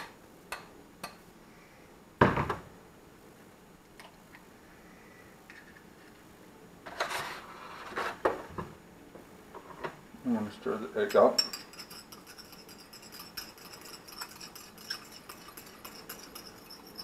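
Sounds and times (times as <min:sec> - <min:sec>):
short rustle or scrape: 0:06.8 - 0:08.2.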